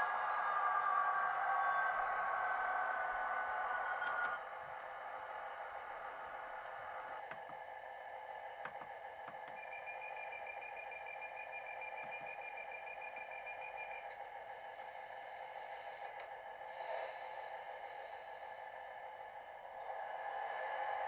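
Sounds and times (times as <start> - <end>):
thin high whistle-like tone: 0.0 - 2.7, 9.5 - 14.1
model railway hum: 0.0 - 21.0
faint clicks: 3.9 - 4.4.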